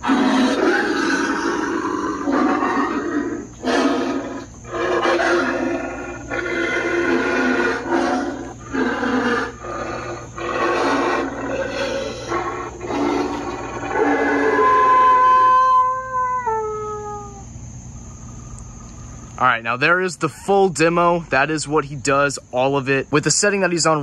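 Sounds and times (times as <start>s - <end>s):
recorded werewolf growls and roars: 0.0s - 17.4s.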